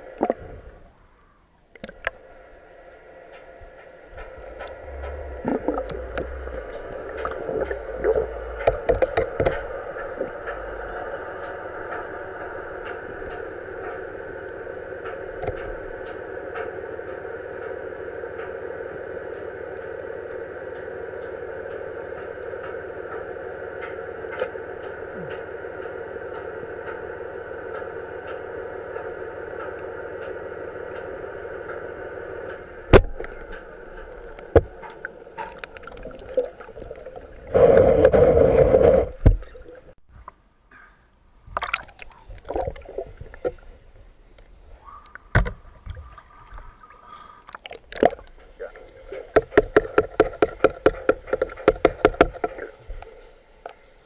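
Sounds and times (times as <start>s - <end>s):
underwater hiss: 33.6s - 39.7s.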